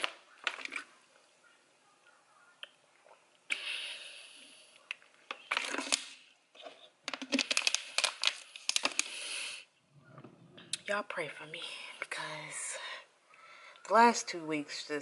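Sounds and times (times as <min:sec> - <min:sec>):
rustling of small objects: 0:04.8 - 0:10.8.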